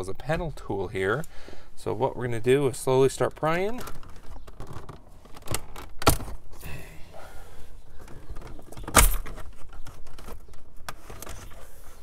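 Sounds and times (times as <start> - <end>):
plastic clicks and rubbing: 8.0 - 11.7.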